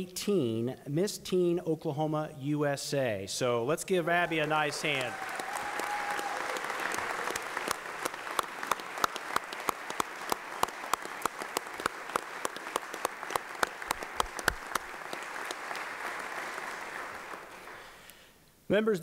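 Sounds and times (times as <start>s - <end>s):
people clapping: 4.1s - 18.2s
close sharp claps: 4.4s - 18.2s.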